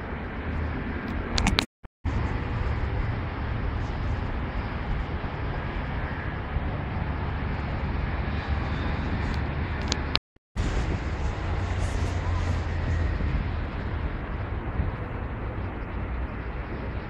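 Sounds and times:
distant road traffic: 0:00.0 - 0:17.0.

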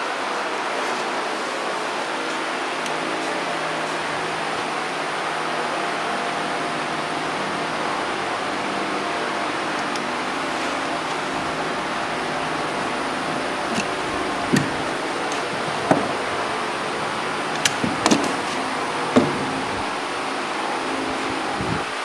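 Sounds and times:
steady background hiss: 0:00.0 - 0:22.0
pipe cutter clicking: 0:13.6 - 0:16.2, 0:17.5 - 0:18.6.

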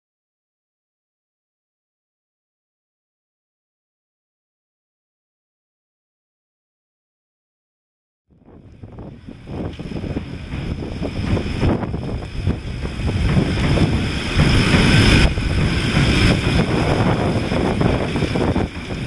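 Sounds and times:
wind buffeting microphone: 0:08.3 - 0:19.0
tram wheels rumbling on rail: 0:08.4 - 0:19.0.

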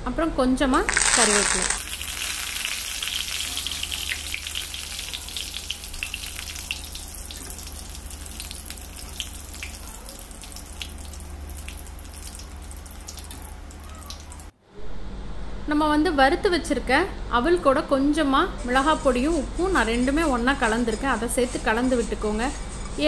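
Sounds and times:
leaves sizzling in hot oil: 0:00.9 - 0:12.5
oil crackles: 0:00.9 - 0:14.5.

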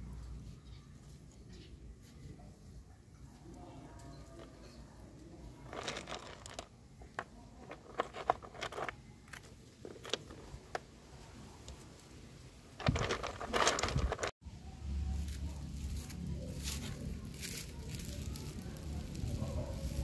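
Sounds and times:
rocks clicking and scraping: 0:05.4 - 0:12.0, 0:12.7 - 0:14.4.

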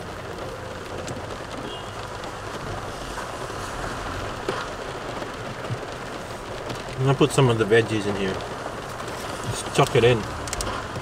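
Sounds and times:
steady hiss in car cabin: 0:07.0 - 0:08.3, 0:09.1 - 0:10.6.

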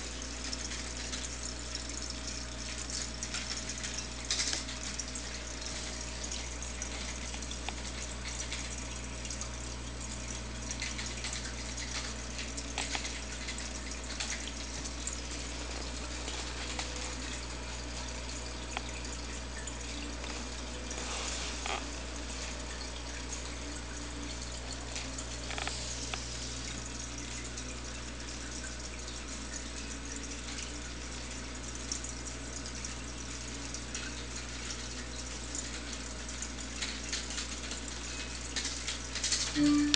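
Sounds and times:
circulating water: 0:00.0 - 0:39.9
low pump hum: 0:00.0 - 0:39.9
faint ticks: 0:18.6 - 0:19.0.

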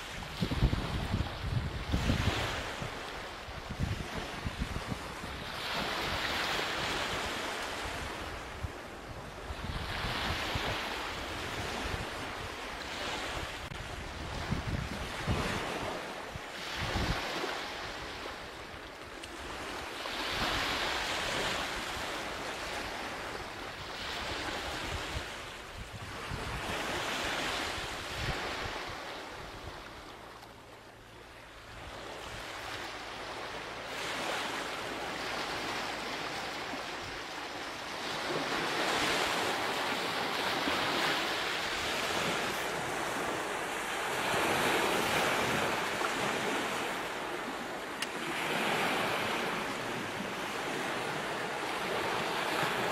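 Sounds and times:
ocean waves washing in: 0:19.5 - 0:52.9.

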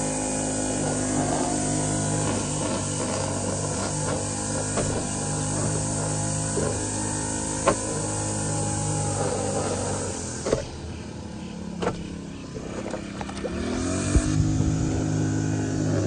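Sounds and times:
engine running and revving: 0:00.0 - 0:16.0.

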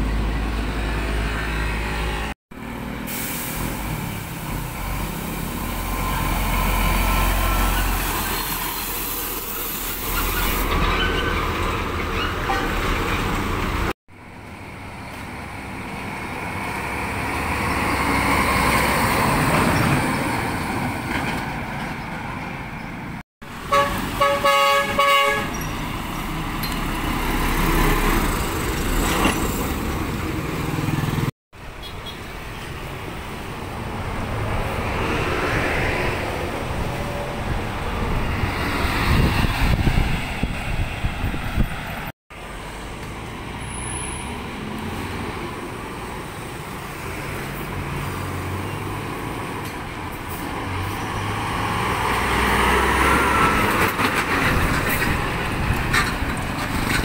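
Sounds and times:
heavy trucks driving past: 0:00.0 - 0:57.0
vehicle horn short toots: 0:23.7 - 0:25.6.

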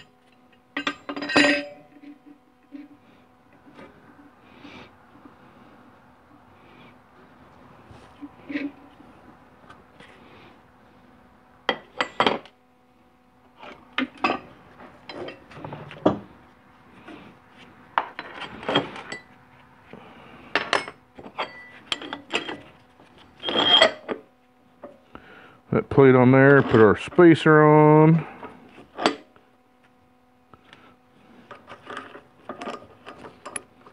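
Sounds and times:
metal tool parts clinking: 0:00.8 - 0:02.2.

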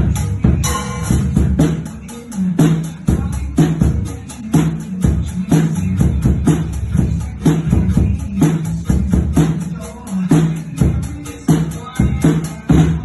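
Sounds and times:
backing track with bass: 0:00.0 - 0:13.0
drum kit groove: 0:00.0 - 0:13.0.

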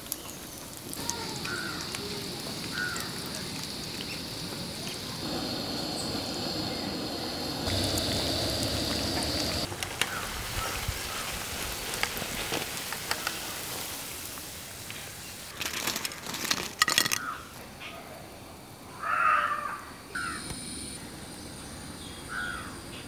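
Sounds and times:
food deep-frying in oil: 0:00.0 - 0:16.7.

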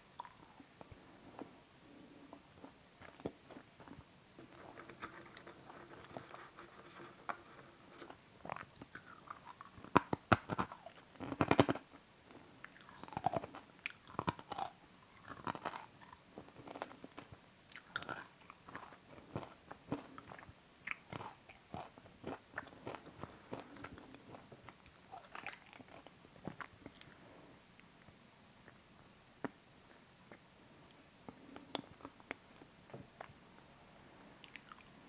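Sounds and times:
person chewing crunchy food: 0:02.3 - 0:11.9, 0:12.6 - 0:27.2, 0:34.4 - 0:34.9.

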